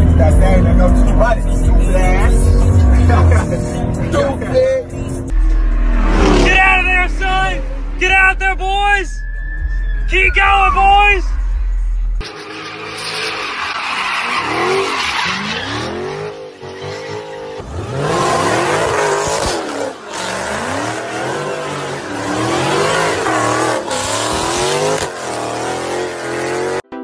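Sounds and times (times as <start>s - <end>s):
car engines revving hard: 0.0s - 8.5s, 12.2s - 26.8s
tyres squealing and skidding: 6.2s - 26.5s.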